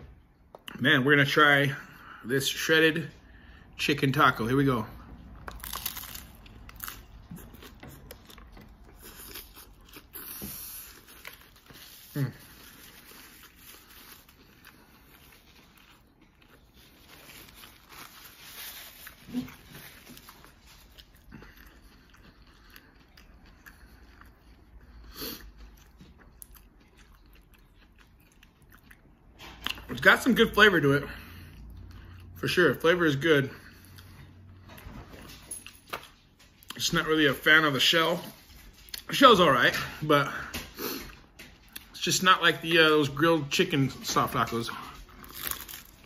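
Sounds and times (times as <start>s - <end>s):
person chewing crunchy food: 5.0s - 30.0s, 44.6s - 46.0s.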